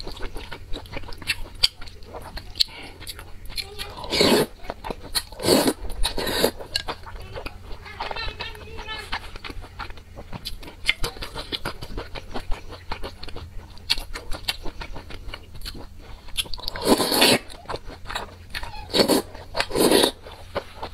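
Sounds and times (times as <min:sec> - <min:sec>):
chewing and wet mouth clicks: 0:00.0 - 0:04.0, 0:08.5 - 0:20.9
loud slurps: 0:05.4 - 0:06.6, 0:16.8 - 0:17.4, 0:18.9 - 0:20.2.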